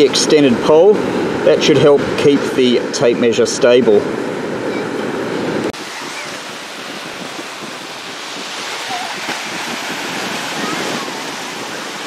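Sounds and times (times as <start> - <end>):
waves washing on beach: 0.0 - 12.0
wind on microphone: 3.9 - 12.0.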